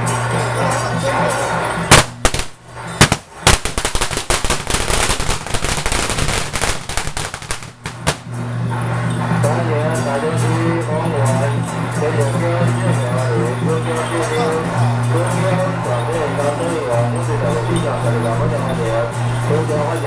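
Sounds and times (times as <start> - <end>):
procession music: 0.0 - 20.0
firecrackers banging: 1.6 - 8.9.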